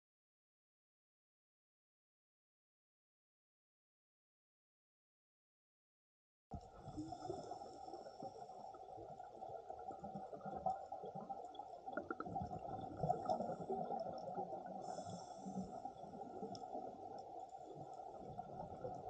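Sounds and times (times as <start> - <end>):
muffled underwater rumbling and gurgling: 6.5 - 19.0.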